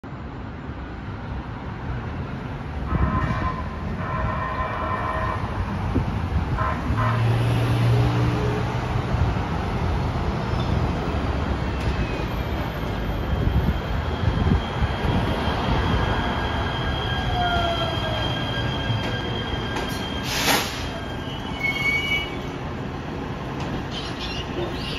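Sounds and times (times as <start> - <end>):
street traffic: 0.0 - 24.9
train horn blasts: 2.9 - 5.5, 6.6 - 7.4.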